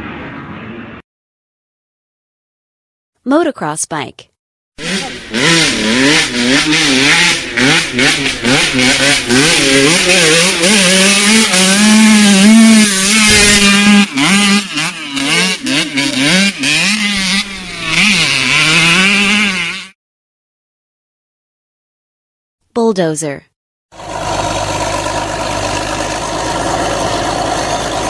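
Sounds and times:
motocross bike engine revving: 4.8s - 20.0s, 24.0s - 28.0s.

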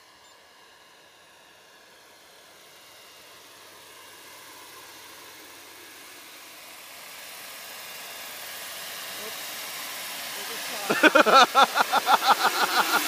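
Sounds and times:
model helicopter flying: 0.0s - 13.0s.

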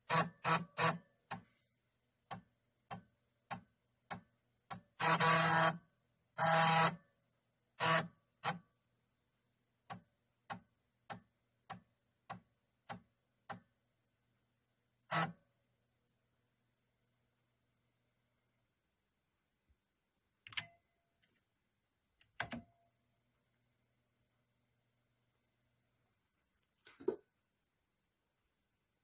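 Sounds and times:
computer buzzes: 5.0s - 5.8s, 6.4s - 7.0s
computer mechanical clicking: 22.2s - 22.7s.

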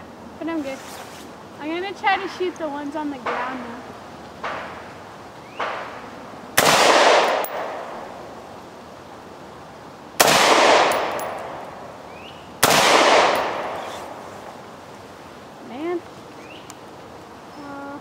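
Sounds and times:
rifle shots: 6.6s - 8.1s, 10.2s - 11.6s, 12.6s - 14.3s.

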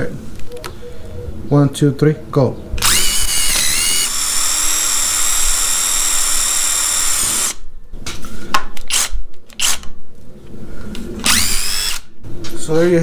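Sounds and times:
impact drivers whining: 2.8s - 7.6s, 11.2s - 12.1s.

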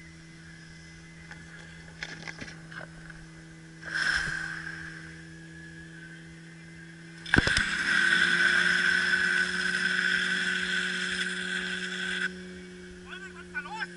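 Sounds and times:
pump engine running: 1.2s - 13.9s
pressurized water hissing: 3.8s - 5.3s.

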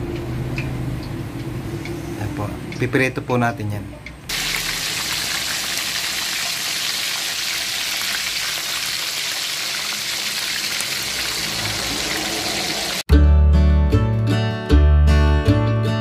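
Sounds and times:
fish deep-frying in oil: 4.3s - 13.0s.

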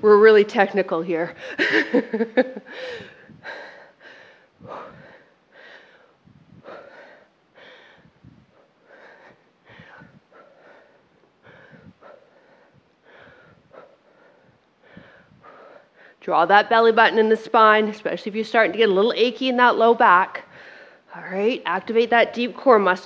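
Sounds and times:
woman breathing hard: 1.3s - 16.2s, 20.4s - 21.2s.

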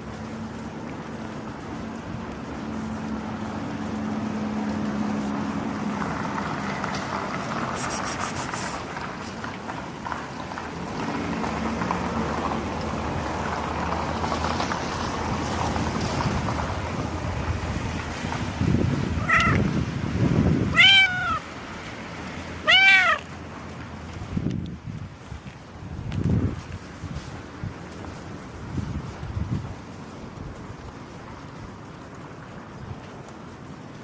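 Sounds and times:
hand rubbing fur: 7.6s - 8.9s
wind on microphone: 11.1s - 21.4s, 24.0s - 34.0s
cat meowing: 19.2s - 19.7s, 20.7s - 21.5s, 22.6s - 23.3s.

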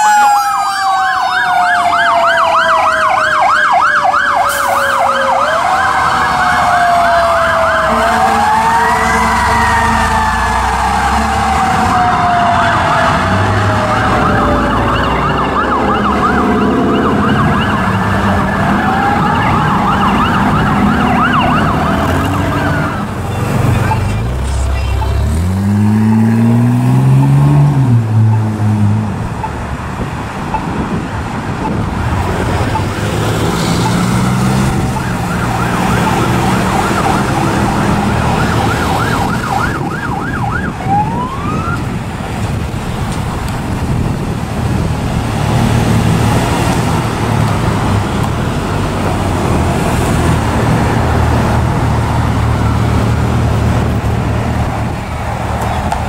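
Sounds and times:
emergency vehicle sirens: 0.0s - 56.0s.

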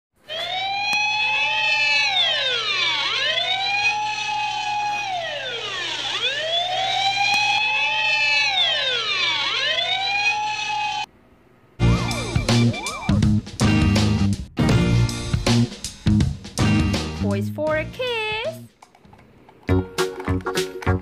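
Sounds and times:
sirens wailing: 0.2s - 11.1s.

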